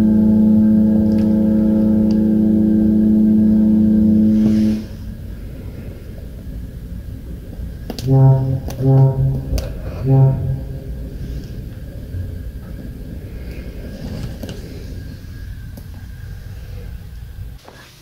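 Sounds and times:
deep ship whistle blast: 0.0 - 5.3, 8.0 - 11.6
wind and sea rushing: 0.7 - 17.6.

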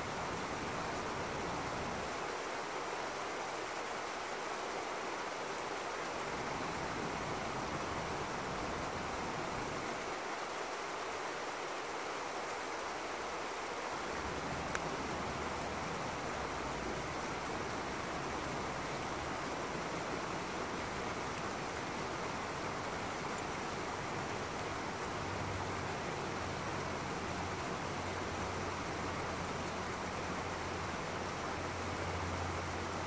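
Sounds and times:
stream rushing over rocks: 0.0 - 33.0
faint tick: 14.6 - 14.9.

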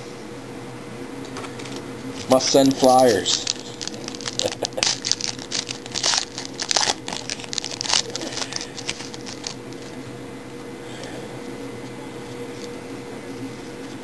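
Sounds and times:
wrapper tearing and crinkling: 2.8 - 9.6.

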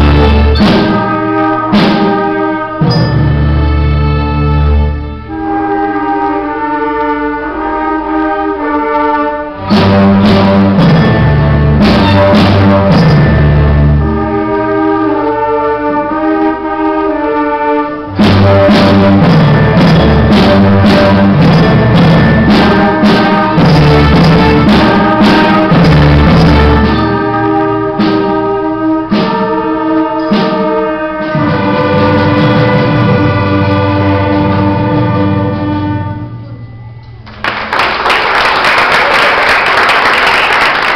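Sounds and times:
sharp percussive strikes: 0.0 - 4.8, 9.6 - 14.3, 18.2 - 35.8
orchestra playing sustained chords: 0.0 - 37.4.

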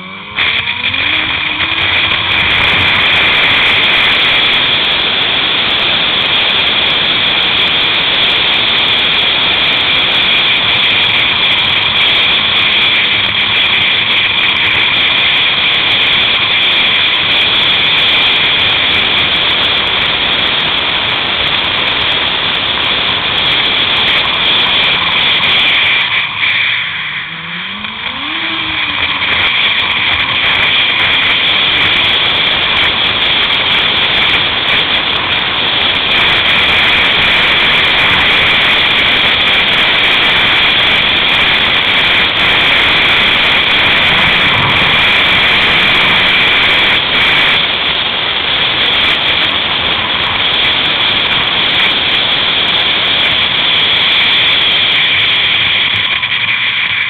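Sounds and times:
snowmobile engine at high speed: 0.0 - 57.0
wind rushing: 23.0 - 48.1.

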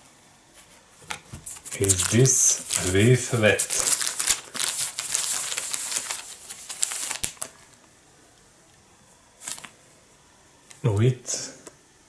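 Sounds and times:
paper rustling and crinkling: 0.6 - 7.8, 9.4 - 9.8.

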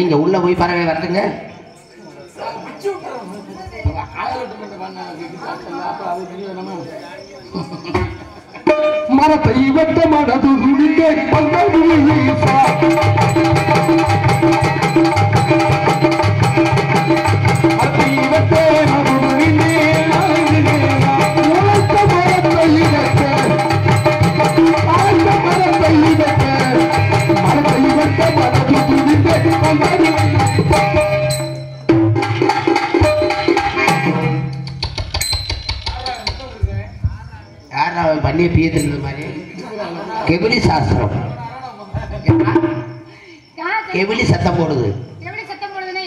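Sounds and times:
held melody: 10.7 - 37.1
hand drum beating: 11.4 - 37.2.

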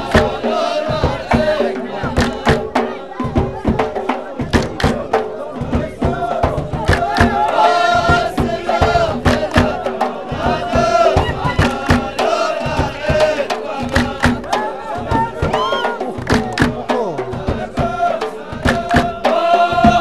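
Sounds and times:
men chanting in chorus: 0.0 - 20.0
rapid hand clapping: 2.2 - 2.7, 4.5 - 5.1, 6.8 - 7.7, 9.2 - 9.8, 11.6 - 12.2, 13.2 - 14.6, 16.2 - 16.8, 18.6 - 19.2.

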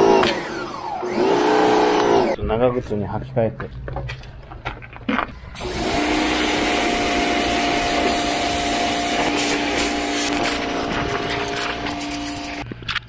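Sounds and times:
pressure washer motor humming: 0.0 - 2.4, 5.6 - 12.6
high-pressure water jet hissing: 5.6 - 12.6.

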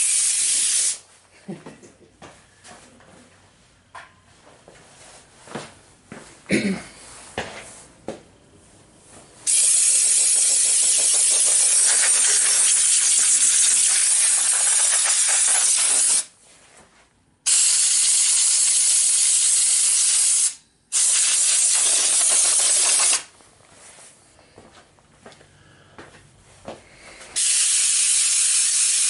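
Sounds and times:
compressed air blasts hissing: 0.0 - 1.0, 9.4 - 16.3, 17.5 - 23.3, 27.4 - 29.0.

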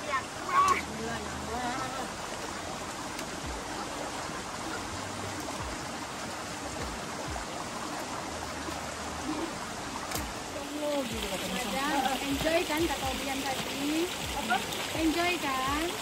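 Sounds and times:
stream flowing over rocks: 0.0 - 16.0
soft low thumps: 6.6 - 7.9.

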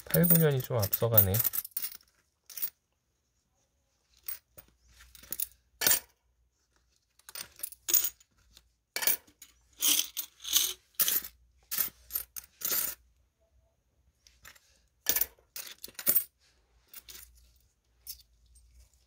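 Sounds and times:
coins clinking: 0.0 - 2.7.

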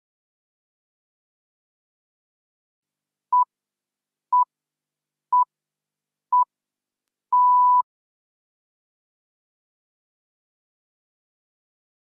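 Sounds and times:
short electronic timer beeps: 7.4 - 7.8.

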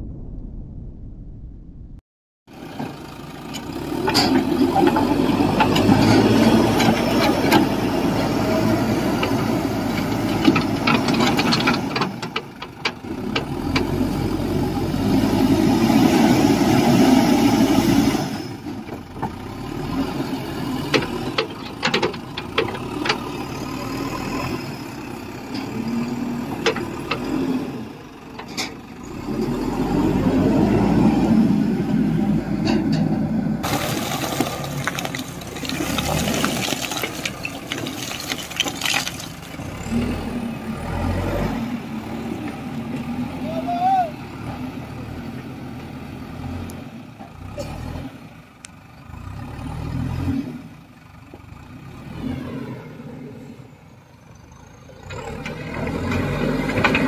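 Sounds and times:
diesel engine under load: 2.5 - 57.0
clanks: 3.5 - 6.2.

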